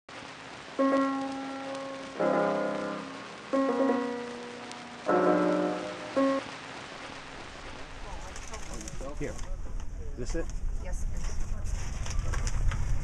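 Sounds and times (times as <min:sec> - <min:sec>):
slow piano chords: 0:00.7 - 0:08.4.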